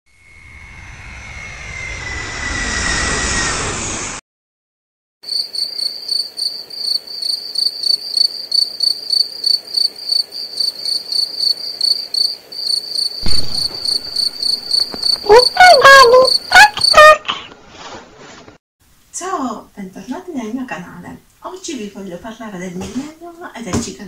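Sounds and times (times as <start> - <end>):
cricket chirping: 5.3 - 17.2
short high gliding notes: 13.2 - 16.2.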